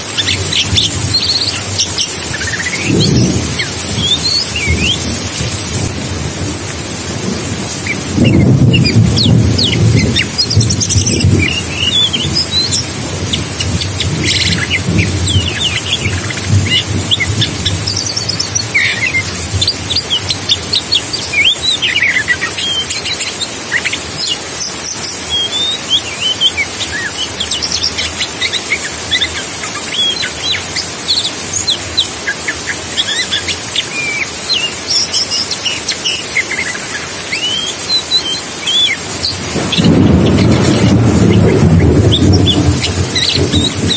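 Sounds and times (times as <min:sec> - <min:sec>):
bird singing: 0:00.0 - 0:05.7, 0:07.6 - 0:43.9
rain hiss: 0:00.0 - 0:43.9
thunder rumbling: 0:00.4 - 0:20.8, 0:39.0 - 0:43.9.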